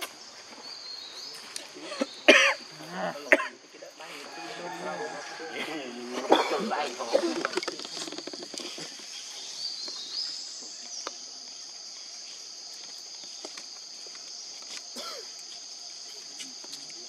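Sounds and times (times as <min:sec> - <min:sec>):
forest insects droning: 0:00.0 - 0:17.0
faint clicks and rustles: 0:07.0 - 0:10.0.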